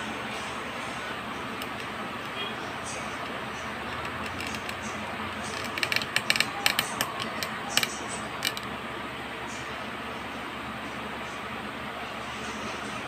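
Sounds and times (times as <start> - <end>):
cat chewing clicks: 3.2 - 8.7.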